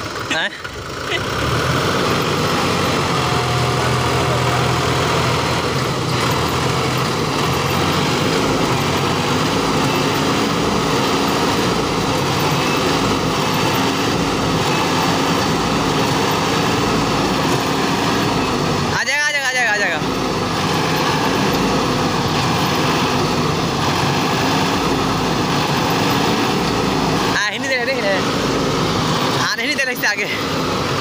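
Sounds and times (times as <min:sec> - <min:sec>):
tractor diesel engine under load: 0:00.0 - 0:31.0.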